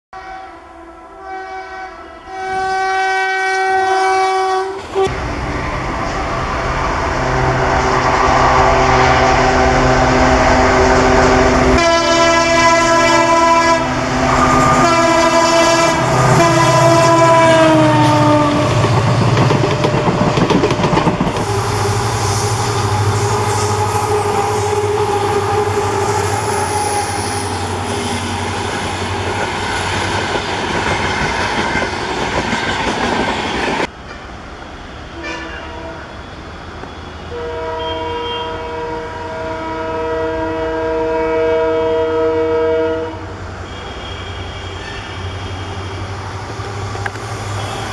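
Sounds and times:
locomotive horn blasts: 0.2 - 5.2, 7.4 - 18.8, 21.4 - 28.4, 35.2 - 36.2, 37.2 - 46.1, 47.5 - 47.9
diesel engines droning: 5.1 - 20.3, 21.2 - 30.1
train wheels clattering: 18.4 - 22.3.

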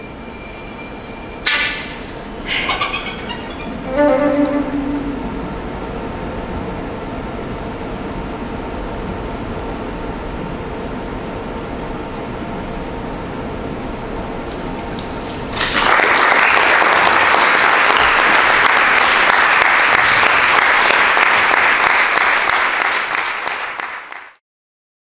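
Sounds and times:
steady low hiss: 1.5 - 15.6
audience applauding: 15.0 - 24.4.

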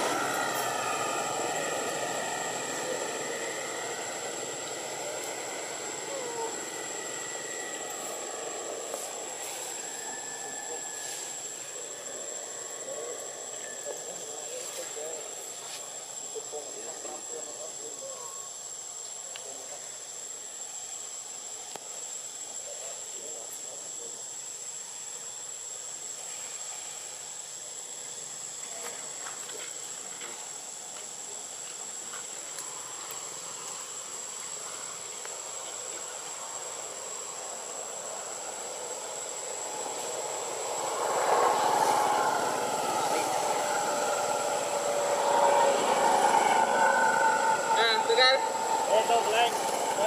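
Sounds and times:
low droning with steady tones: 0.0 - 15.5
faint hiss: 0.0 - 50.0
insects droning: 0.0 - 50.0.

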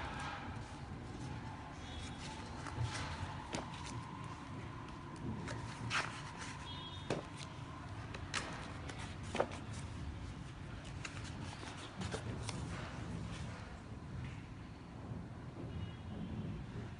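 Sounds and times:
heavy pages slapping and rustling: 0.1 - 13.7.

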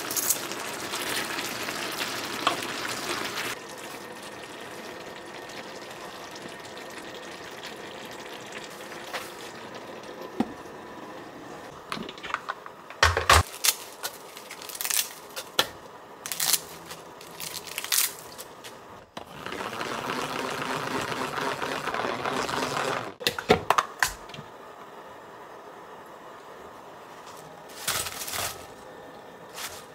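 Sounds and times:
lettuce leaves tearing: 13.5 - 15.2, 16.3 - 18.5
salad spinner whirring: 19.2 - 23.2.

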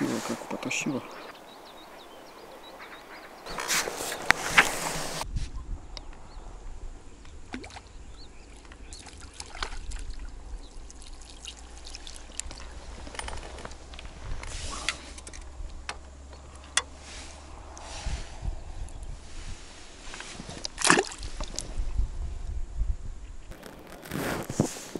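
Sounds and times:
water splashing and dripping: 7.4 - 7.9, 8.5 - 13.8, 20.6 - 21.6.

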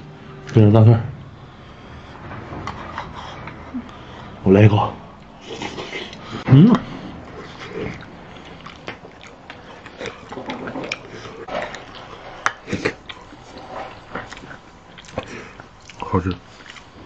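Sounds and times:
man chewing and smacking: 5.2 - 17.0
man humming: 6.4 - 6.9.

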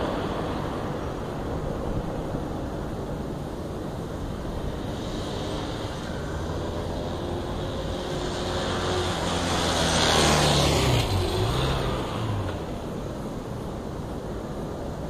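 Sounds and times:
motorcycle engine passing by: 4.7 - 13.0.

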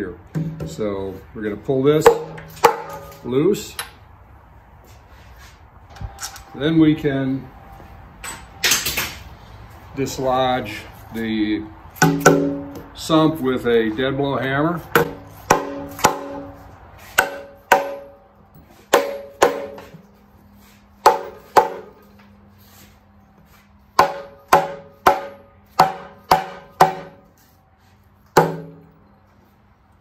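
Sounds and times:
hammer striking metal sump: 0.3 - 0.9, 2.0 - 3.2, 12.0 - 12.9, 14.9 - 18.2, 18.9 - 20.1, 21.0 - 22.0, 24.0 - 27.3, 28.3 - 29.0.

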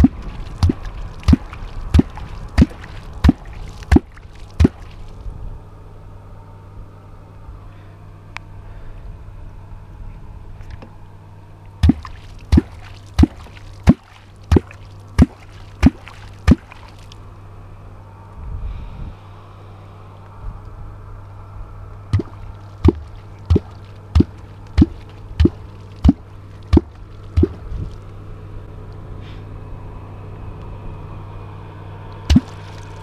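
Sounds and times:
hollow plops in water: 0.0 - 5.2, 11.8 - 17.2, 22.1 - 27.8, 32.2 - 33.0.

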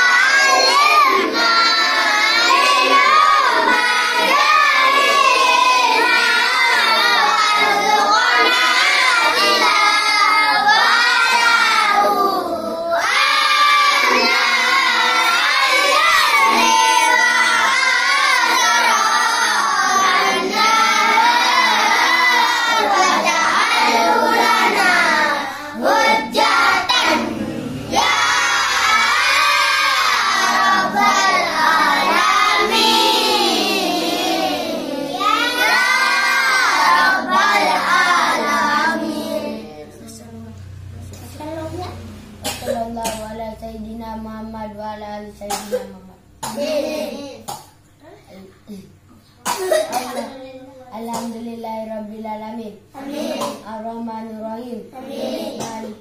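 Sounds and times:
children chanting in unison: 0.0 - 40.2.

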